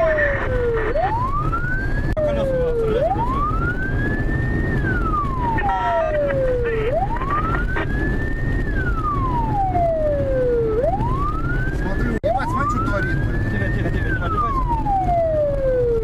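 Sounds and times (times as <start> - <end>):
cars driving rumble: 0.0 - 16.0
police siren wailing: 0.0 - 16.0.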